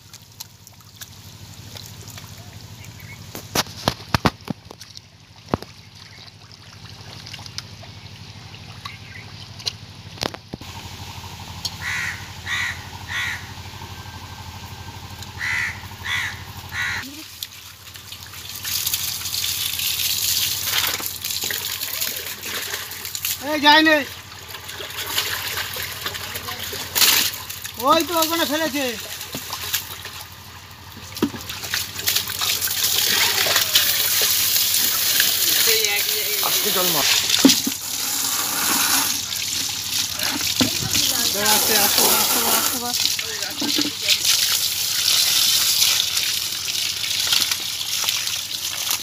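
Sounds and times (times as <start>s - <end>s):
bird giving short calls: 11.8s - 13.6s, 15.4s - 17.1s
water pouring onto fish: 17.2s - 49.0s.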